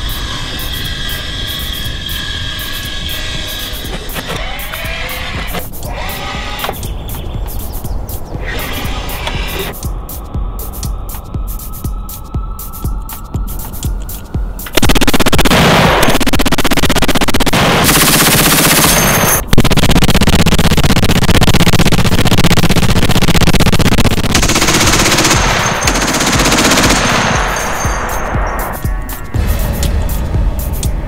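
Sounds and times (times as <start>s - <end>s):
heavy machine gun automatic bursts: 14.8s - 27.7s.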